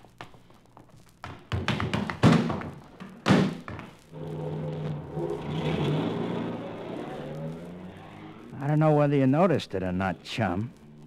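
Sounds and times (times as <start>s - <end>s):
car pulling away: 4.1s - 9.0s
car engine running: 4.2s - 8.6s.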